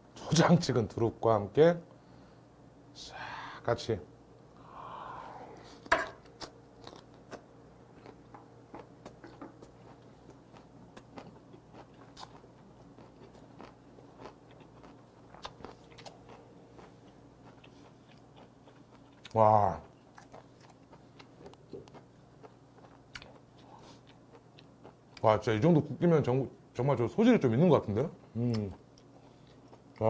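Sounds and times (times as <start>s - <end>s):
close chewing: 8.0s - 25.2s.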